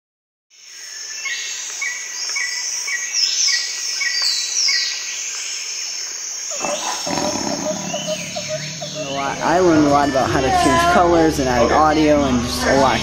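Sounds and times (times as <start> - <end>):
insects buzzing: 0.9 - 12.3
birds calling: 6.4 - 12.4
falling whistles: 6.5 - 10.2
deeper sound: 6.5 - 11.3.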